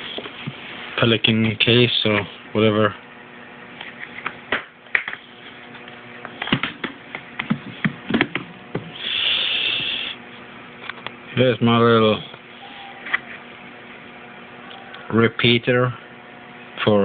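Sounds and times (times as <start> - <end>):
case lid scraping hiss: 8.8 - 10.2.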